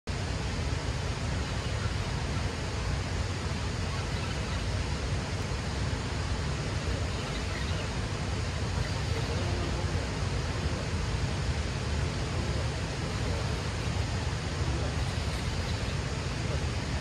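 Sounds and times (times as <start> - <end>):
water rushing: 0.1 - 17.0
wind: 0.1 - 17.0.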